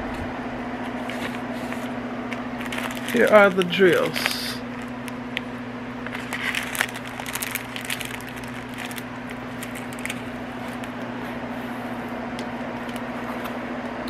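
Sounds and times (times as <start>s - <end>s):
steady low hum: 0.0s - 14.0s
plastic packets crackling: 1.1s - 11.0s, 12.8s - 13.1s.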